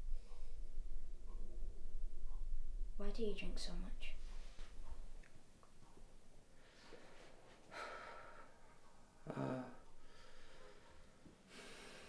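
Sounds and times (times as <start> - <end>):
faint breathing: 6.5 - 12.0.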